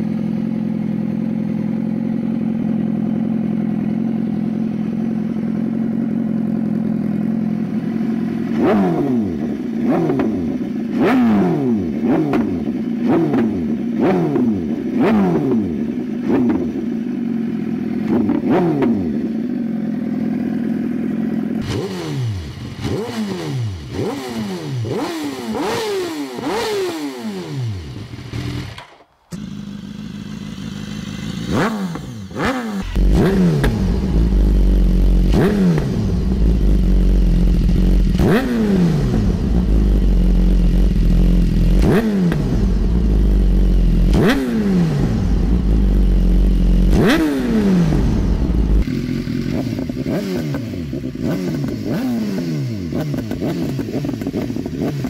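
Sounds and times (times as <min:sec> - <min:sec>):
motorcycle engine revving: 0:00.0 - 0:55.0
deep exhaust rumble: 0:32.9 - 0:41.9, 0:42.5 - 0:49.9.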